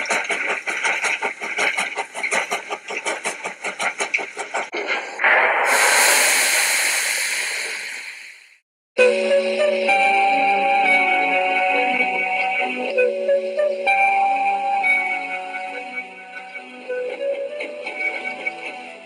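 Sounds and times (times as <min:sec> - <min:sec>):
train chugging: 0:00.0 - 0:19.0
loud crash: 0:04.8 - 0:08.6
music: 0:09.0 - 0:19.0.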